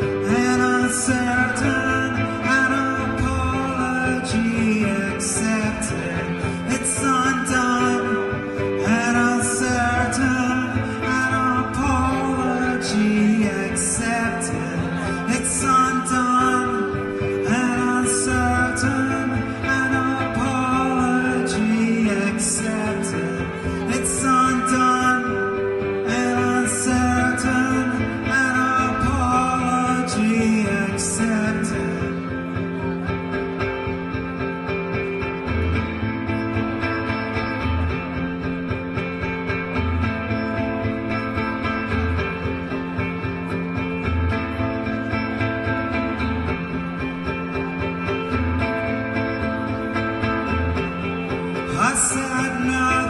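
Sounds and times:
electric guitar chords: 0.0 - 53.0
man singing: 0.0 - 53.0.

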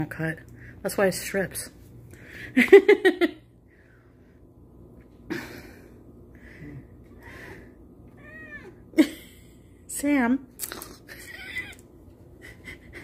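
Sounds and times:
faint breathing: 3.6 - 4.7, 5.3 - 8.0.

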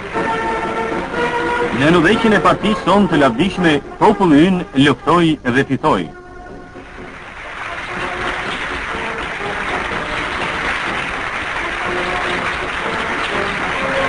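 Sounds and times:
crowd cheering and applauding: 0.0 - 3.6, 6.4 - 14.0
faint music: 0.0 - 14.0.

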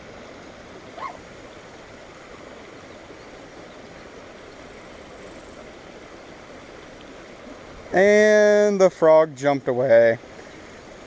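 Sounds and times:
water rushing over bridge: 0.0 - 11.0.

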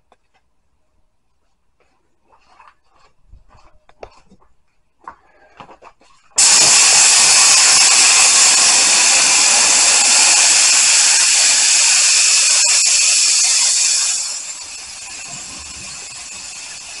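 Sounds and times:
spray gun hissing: 6.4 - 17.0.

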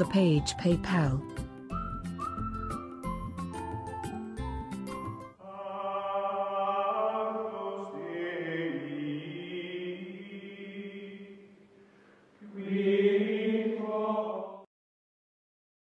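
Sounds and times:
choral chords: 5.3 - 11.8, 12.4 - 14.7.

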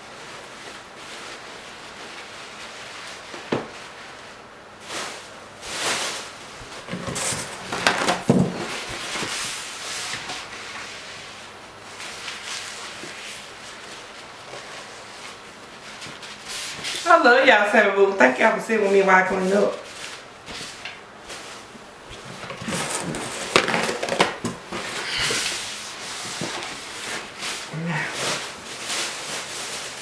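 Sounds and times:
paper crumpling and rustling: 18.8 - 30.0.

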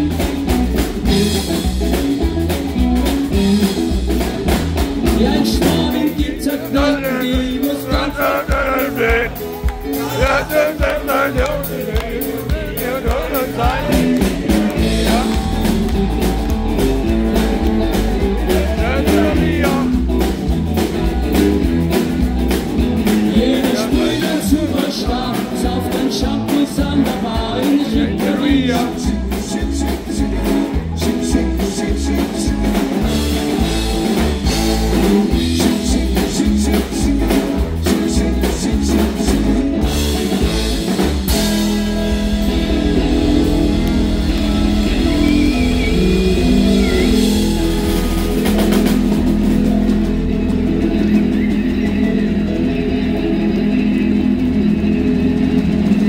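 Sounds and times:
live rock band playing: 0.0 - 56.0
saxophone: 42.4 - 48.9.

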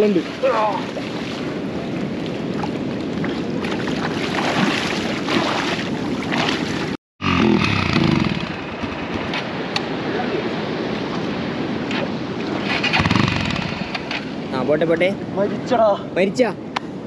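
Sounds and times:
rushing water: 0.0 - 7.0, 8.0 - 15.9
wind noise: 0.0 - 17.0
motorcycle engine running: 13.0 - 14.1.

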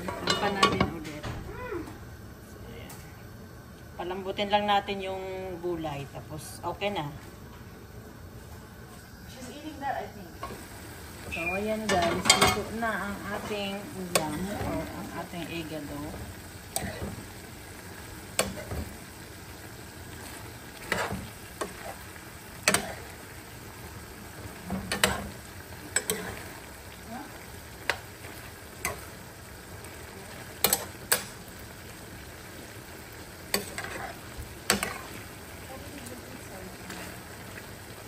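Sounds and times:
food sizzling in a pan: 0.0 - 38.0
metal spoon scraping a pan: 20.8 - 22.0, 22.6 - 23.1, 25.9 - 26.5, 30.6 - 31.3, 33.5 - 35.2.

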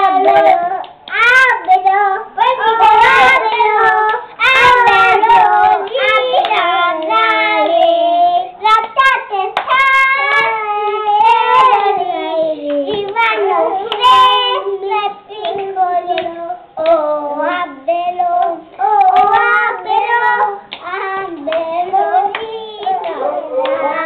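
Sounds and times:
girls singing: 0.0 - 24.0
hands clapping: 18.4 - 19.6, 20.7 - 23.9.

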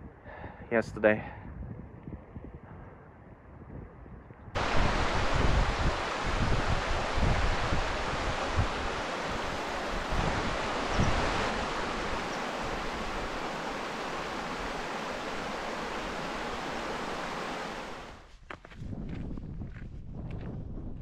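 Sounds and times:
wind buffeting microphone: 1.4 - 21.0
stream running over stones: 4.6 - 18.2.

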